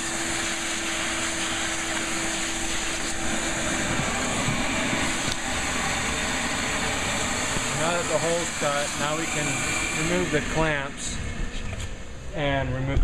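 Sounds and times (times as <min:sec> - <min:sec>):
vacuum sucking up plastic chips: 0:00.0 - 0:11.2
shop vacuum running: 0:00.0 - 0:13.0.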